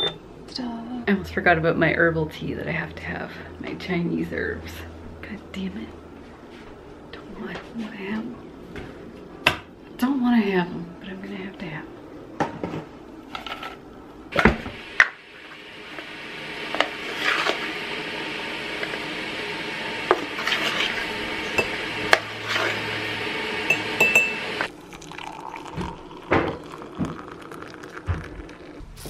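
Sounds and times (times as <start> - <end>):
metal spoon clinking on ceramic mug: 23.7 - 24.4.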